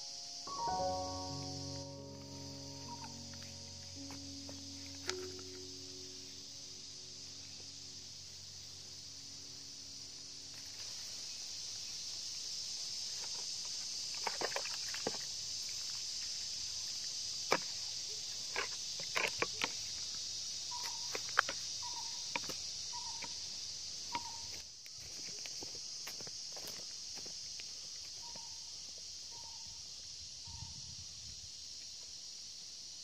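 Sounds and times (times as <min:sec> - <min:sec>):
short even notes: 0:00.0 - 0:08.1
high-pitched insect chorus: 0:00.0 - 0:33.0.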